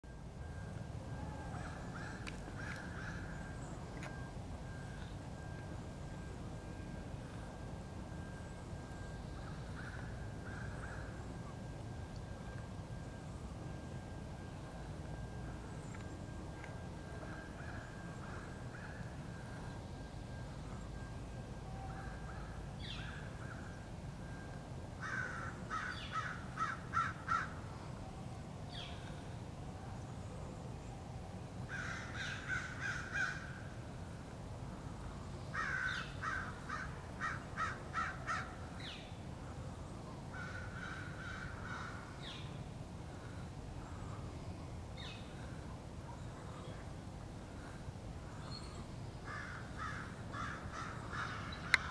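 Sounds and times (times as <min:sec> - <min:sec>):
steady low background rumble: 0:00.0 - 0:51.9
crows cawing: 0:01.4 - 0:04.8, 0:09.5 - 0:11.2, 0:17.2 - 0:19.2, 0:25.0 - 0:27.6, 0:31.7 - 0:33.7, 0:35.6 - 0:38.6, 0:40.3 - 0:42.4, 0:49.3 - 0:51.9.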